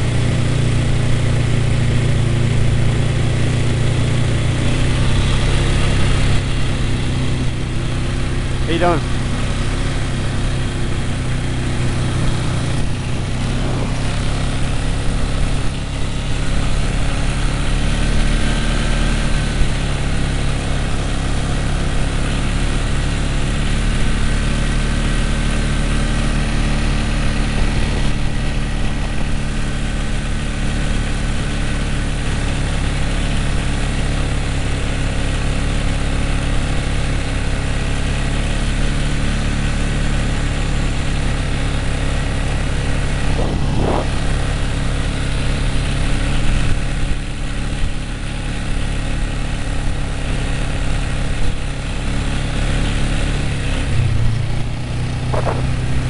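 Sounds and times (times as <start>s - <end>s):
atv engines droning: 0.0s - 56.0s.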